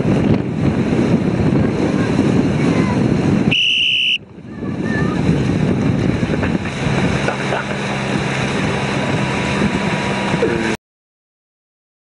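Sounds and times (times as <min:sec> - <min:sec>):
choppy water: 0:00.0 - 0:10.8
motorboat engine hum: 0:00.0 - 0:10.8
wind noise on microphone: 0:00.0 - 0:10.8.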